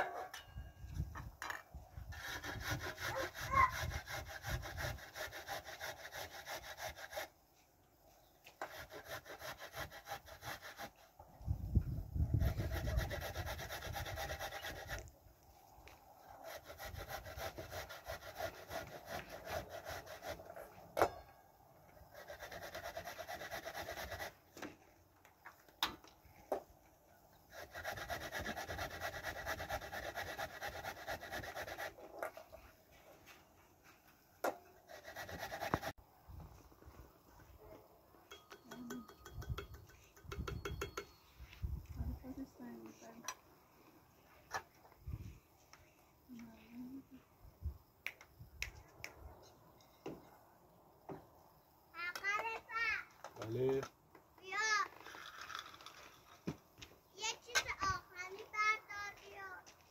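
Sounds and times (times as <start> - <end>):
carrot rasping on metal grater: 2.1 - 7.3, 12.3 - 15.1, 22.1 - 24.4, 27.5 - 32.0, 34.9 - 35.9.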